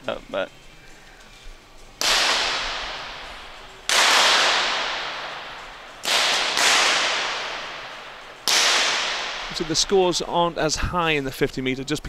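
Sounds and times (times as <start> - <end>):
pistol shots echoing: 2.0 - 10.3.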